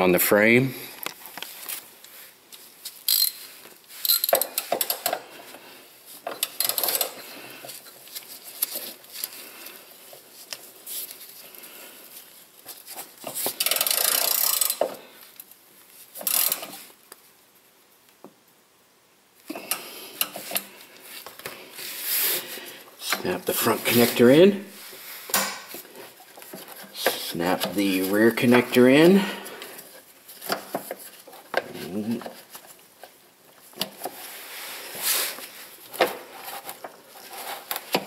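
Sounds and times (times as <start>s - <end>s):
metal parts scraping: 3.0s - 5.2s, 6.3s - 9.4s
ratchet clicking: 3.1s - 3.4s, 4.0s - 5.2s, 6.4s - 7.2s, 13.6s - 14.9s, 16.2s - 16.7s.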